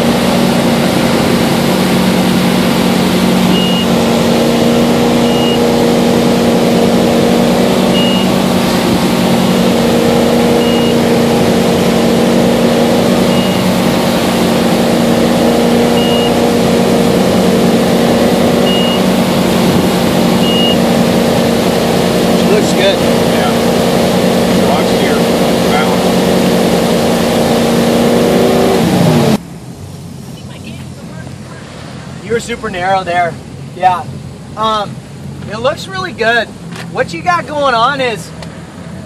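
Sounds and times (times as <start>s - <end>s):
wind and water rushing: 0.0s - 30.2s
boat engine running: 0.0s - 39.0s
short high beep: 3.5s - 4.0s, 5.2s - 5.8s, 7.9s - 8.4s, 10.4s - 11.2s, 13.2s - 13.7s, 15.8s - 16.5s, 18.6s - 19.2s, 20.4s - 20.9s.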